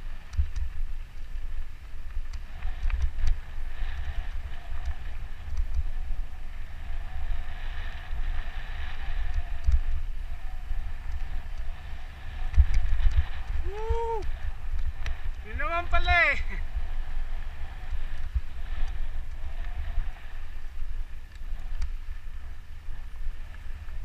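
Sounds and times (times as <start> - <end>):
faint steady whir: 0.0 - 24.0
wind buffeting microphone: 0.0 - 24.0
bike clicks and rattles: 0.2 - 5.9, 9.3 - 10.1, 21.2 - 22.1.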